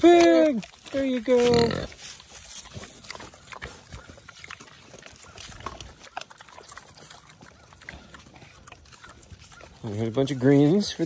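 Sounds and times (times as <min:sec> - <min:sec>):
pigs chomping wet crunches: 0:00.0 - 0:11.0.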